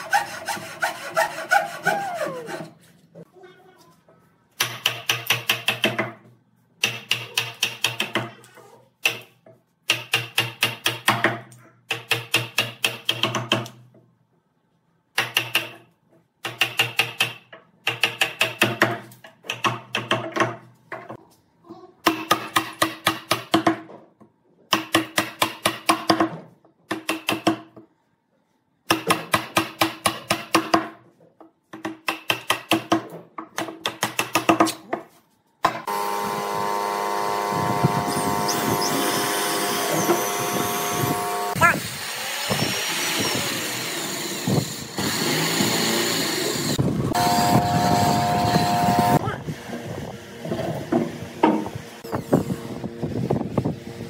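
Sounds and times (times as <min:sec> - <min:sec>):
wooden mallet hammering chisel: 0:04.6 - 0:06.2, 0:06.8 - 0:08.4, 0:09.9 - 0:13.8, 0:16.4 - 0:20.6, 0:24.7 - 0:27.8, 0:31.7 - 0:34.8.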